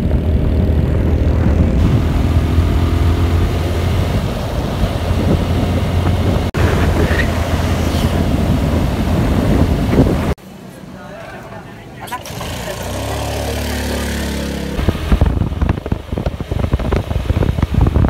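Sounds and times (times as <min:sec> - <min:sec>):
wind rumble on microphone: 0:00.0 - 0:10.4, 0:14.8 - 0:18.0
motorcycle engine hum: 0:00.0 - 0:18.0.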